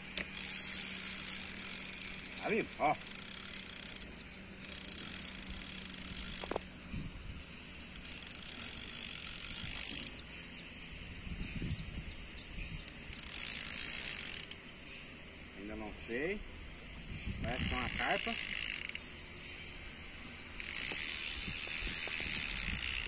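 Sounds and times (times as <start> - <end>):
fishing reel whirring: 0.0 - 11.5, 12.1 - 23.0.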